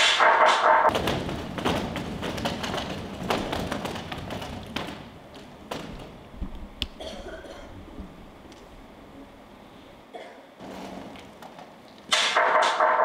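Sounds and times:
feet and chairs thudding on stage: 0:00.9 - 0:06.8.

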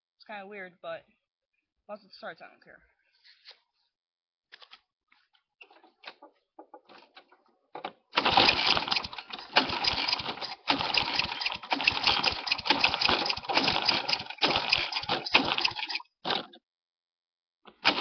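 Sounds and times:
lawn mower engine running: 0:06.7 - 0:16.6, 0:17.7 - 0:18.0.

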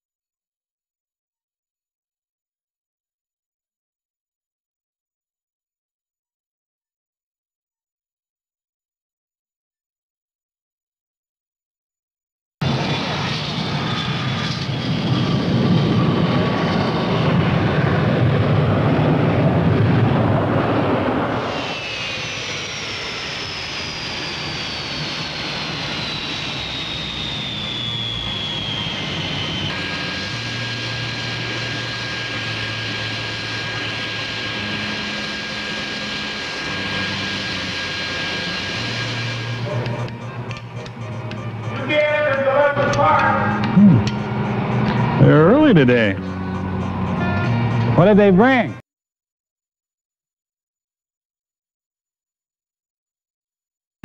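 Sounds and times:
high turbine whine: 0:12.6 - 0:48.8
jet engine roar: 0:12.6 - 0:48.8.

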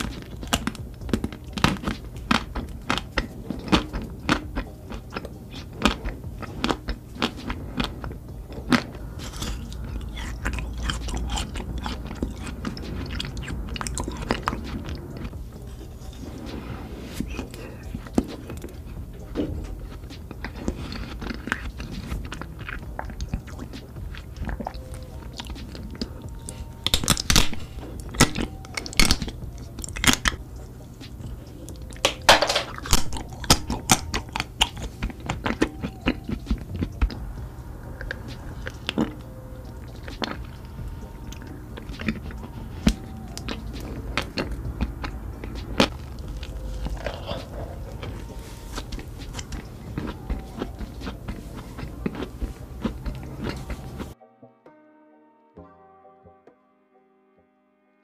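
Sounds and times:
crunching bites and chewing: 0:00.0 - 0:16.3, 0:17.2 - 0:30.4, 0:31.1 - 0:37.3, 0:38.0 - 0:54.2
low steady hum: 0:00.0 - 0:54.2.

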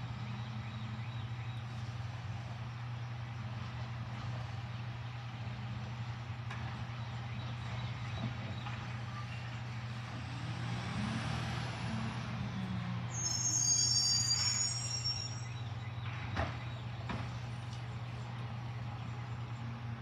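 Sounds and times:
truck diesel engine running: 0:00.0 - 0:13.3
brakes squealing: 0:06.6 - 0:17.4.

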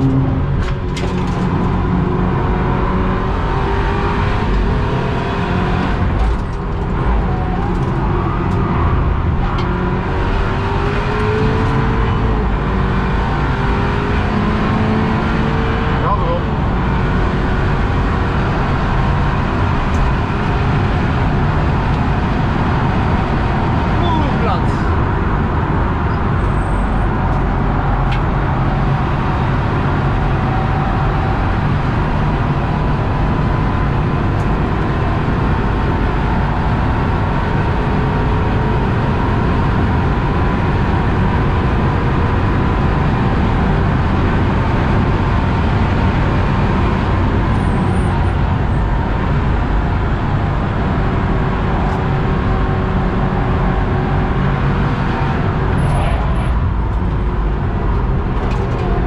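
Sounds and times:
car engine running hard: 0:00.0 - 0:59.0
road and tyre noise: 0:00.0 - 0:59.0.

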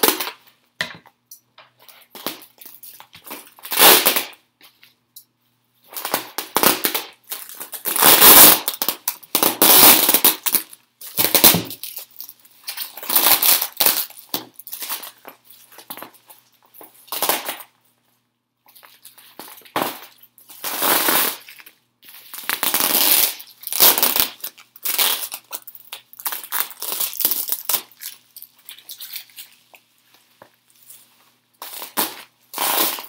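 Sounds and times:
packaging wrap crinkling: 0:06.0 - 0:17.8, 0:18.6 - 0:33.0.

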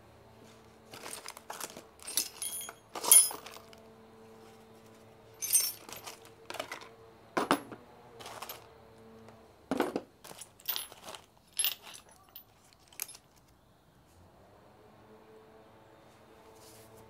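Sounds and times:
metal tools clinking: 0:00.9 - 0:03.8, 0:05.4 - 0:08.7, 0:09.7 - 0:13.4.

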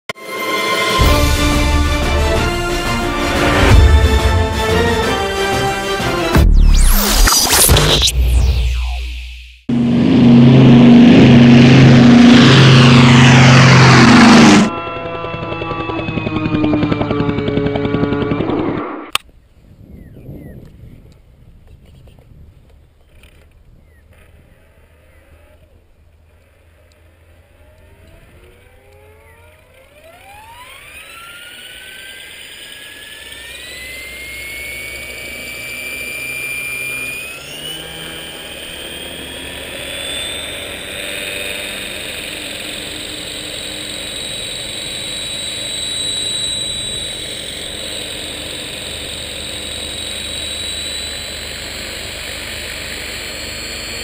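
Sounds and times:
model helicopter whine and rotor: 0:09.7 - 0:19.3, 0:22.7 - 0:54.0.

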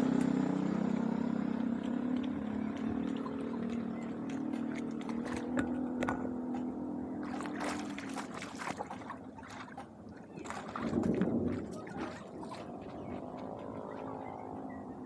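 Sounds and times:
steady engine hum: 0:00.0 - 0:15.0
feet splashing through water: 0:01.4 - 0:14.9.

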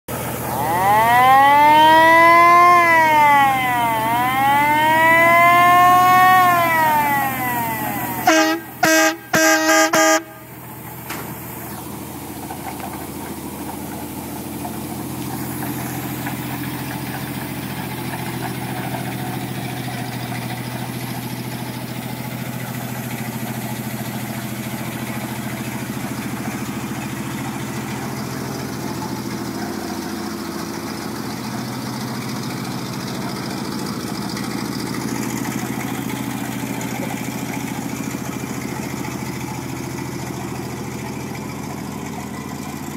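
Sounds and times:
truck engine idling: 0:00.1 - 0:42.9
fire engine horn blast: 0:00.3 - 0:10.9.

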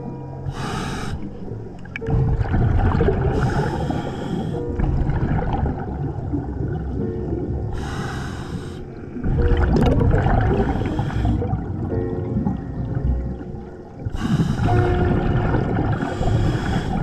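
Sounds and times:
exhaled bubbles gurgling: 0:00.0 - 0:17.0
regulator inhalation hiss: 0:00.5 - 0:01.4, 0:03.4 - 0:04.6, 0:07.8 - 0:08.9, 0:10.6 - 0:11.4, 0:16.0 - 0:17.0.

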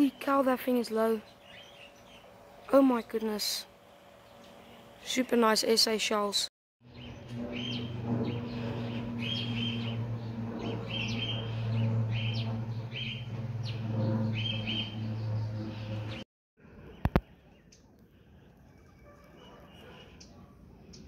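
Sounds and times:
steady low drone: 0:06.8 - 0:17.1
small bird chirping: 0:06.9 - 0:16.2.

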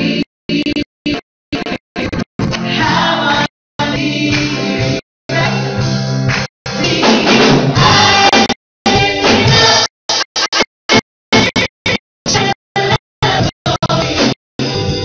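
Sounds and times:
guitars: 0:00.0 - 0:15.0
choir voices: 0:02.6 - 0:05.8, 0:06.8 - 0:09.9.

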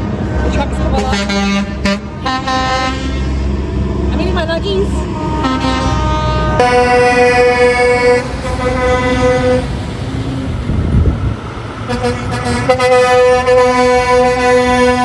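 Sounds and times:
truck engine and tyre rumble: 0:00.0 - 0:15.0
truck air horns blowing: 0:00.9 - 0:03.5, 0:05.1 - 0:09.8, 0:11.9 - 0:15.0.

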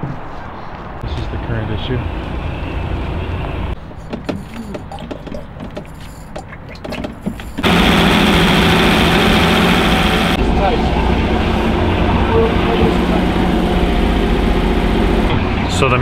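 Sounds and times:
boat engine running: 0:07.6 - 0:16.0.

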